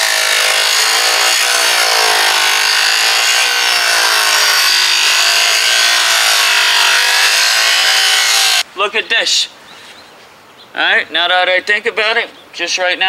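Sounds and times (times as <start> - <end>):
circular saw cutting metal: 0.0 - 8.6.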